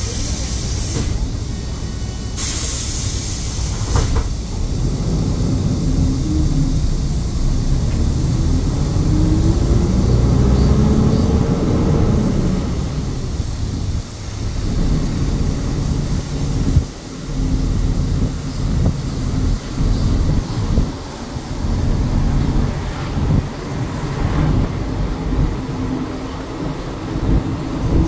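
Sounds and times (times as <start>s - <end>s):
bus air brake hiss: 0.0s - 4.6s
bus engine drone rising: 0.0s - 28.0s.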